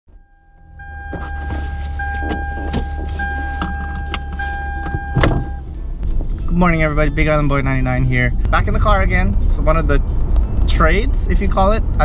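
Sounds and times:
low car cabin rumble: 0.1 - 12.0
steady high tone: 0.2 - 9.1.

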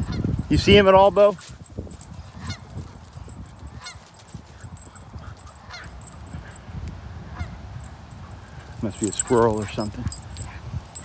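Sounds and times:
low steady rustling: 0.0 - 6.8, 7.8 - 11.0
geese honking: 5.6 - 5.9.

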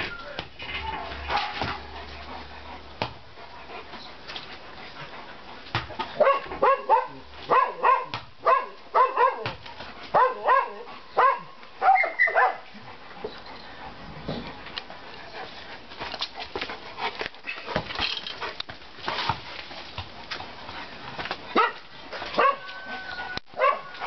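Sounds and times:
dog barking excitedly: 6.2 - 12.7, 21.5 - 24.0.

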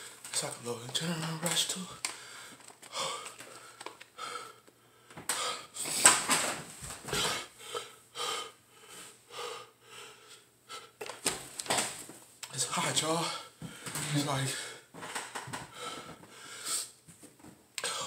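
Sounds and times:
man breathing hard and wheezing: 2.0 - 6.2, 7.0 - 11.2, 13.2 - 17.0, 17.8 - 18.0.

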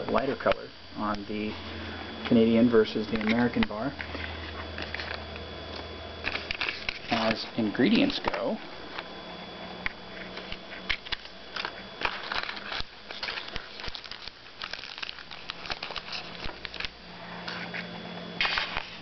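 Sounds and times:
candy wrapper crinkling: 10.2 - 17.6.

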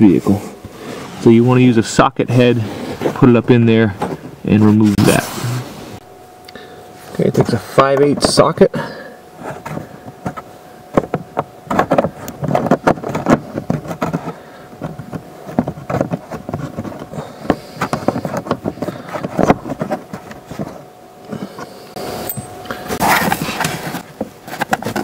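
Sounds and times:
faint steady whine: 0.0 - 25.0
fingers clicking and scraping plastic: 9.5 - 21.7, 23.1 - 25.0.

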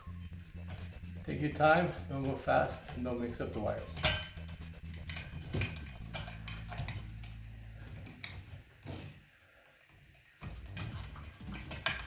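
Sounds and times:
wires clicking and rattling: 0.0 - 9.2, 10.4 - 12.0
low steady hum: 0.0 - 12.0.

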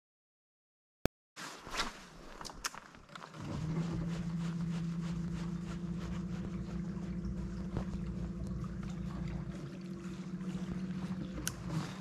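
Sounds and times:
boat motor humming: 3.3 - 12.0.

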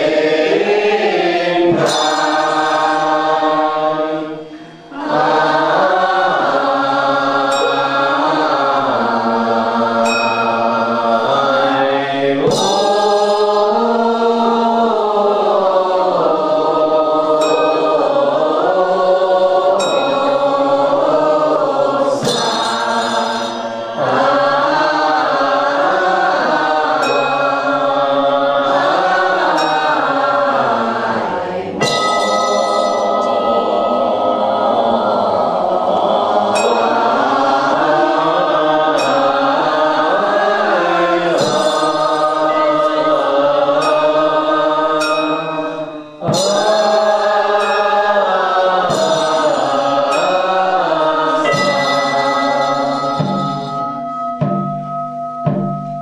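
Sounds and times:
group chanting a hymn in unison: 0.0 - 54.0
small metal bell ringing: 10.1 - 11.3, 22.2 - 24.5, 31.8 - 33.7, 51.4 - 56.0.

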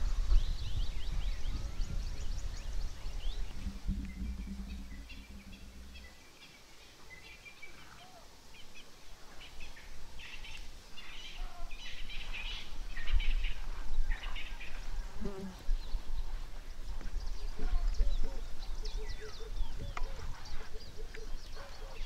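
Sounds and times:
low rumbling noise: 0.0 - 6.9
small birds chirping: 0.0 - 22.0
low thump: 3.4 - 6.2.

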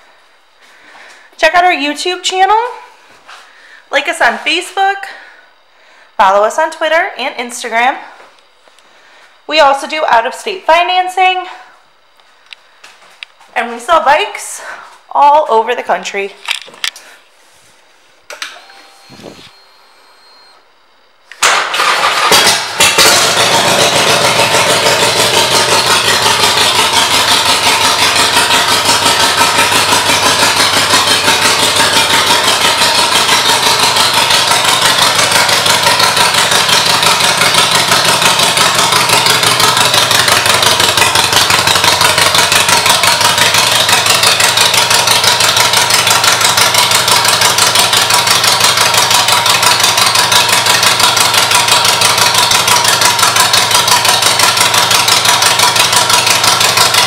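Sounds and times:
motorcycle engine starting: 21.3 - 57.0
motorcycle engine idling: 21.8 - 57.0.

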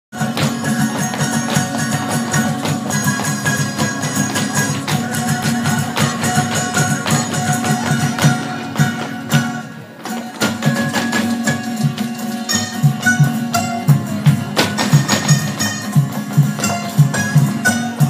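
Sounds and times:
folk dance music: 0.1 - 18.0
jingling percussion: 0.2 - 18.0.

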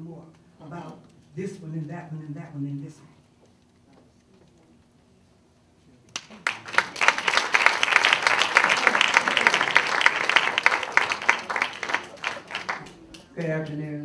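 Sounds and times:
audience applauding: 6.2 - 13.8.

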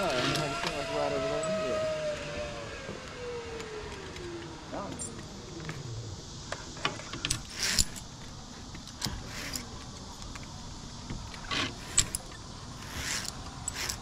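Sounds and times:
metal hardware clinking and jingling: 7.2 - 8.2.

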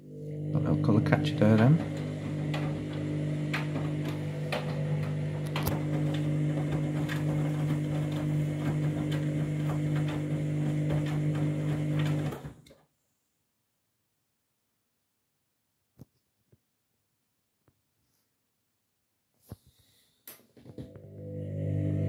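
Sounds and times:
washing machine motor hum: 0.0 - 12.7, 20.8 - 22.0.

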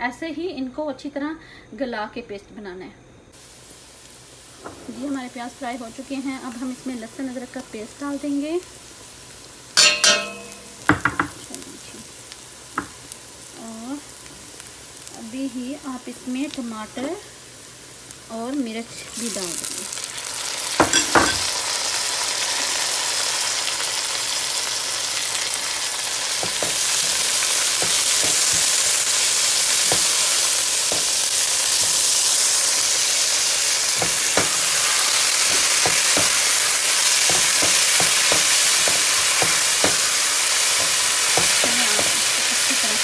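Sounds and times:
vegetables sizzling in oil: 3.3 - 43.0
spatula tapping and scraping pan: 9.8 - 11.4, 26.4 - 28.9, 29.8 - 30.3, 35.4 - 36.4, 37.2 - 40.1, 40.7 - 42.3.

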